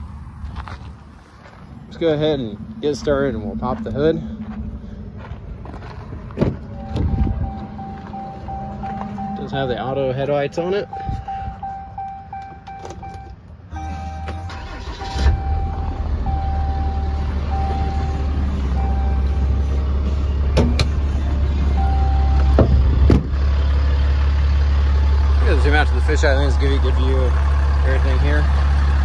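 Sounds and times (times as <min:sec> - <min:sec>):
diesel engine cranking and starting: 0:00.0 - 0:29.0
diesel engine idling: 0:00.0 - 0:29.0
dashboard warning chime: 0:06.7 - 0:20.2, 0:21.7 - 0:22.5.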